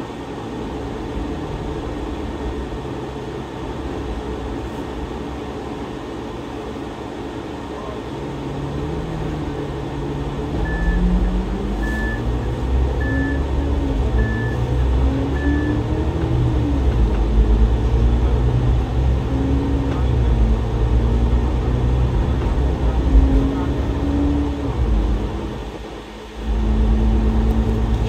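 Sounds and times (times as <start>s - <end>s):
bus diesel engine accelerating: 0.0s - 28.0s
short high beeps: 11.8s - 12.3s.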